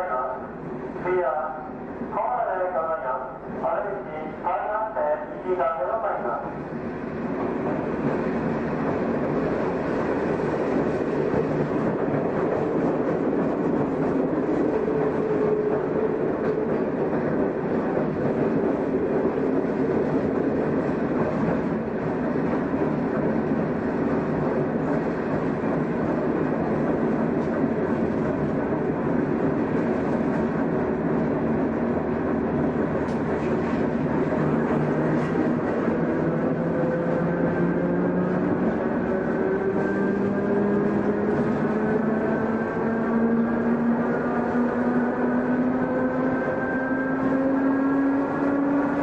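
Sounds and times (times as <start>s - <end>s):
train wheels running on rails: 6.4s - 49.0s.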